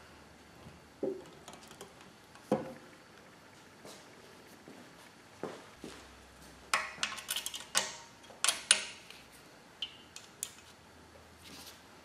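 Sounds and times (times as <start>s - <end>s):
soft rustle: 11.4s - 12.0s.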